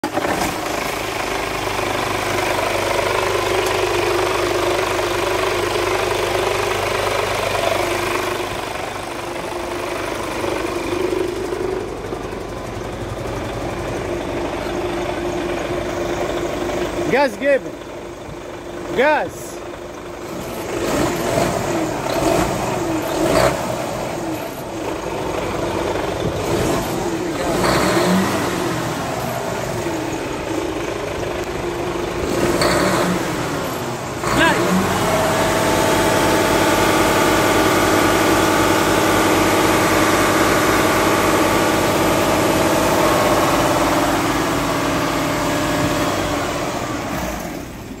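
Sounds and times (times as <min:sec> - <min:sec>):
diesel engine revving: 0:00.0 - 0:48.0.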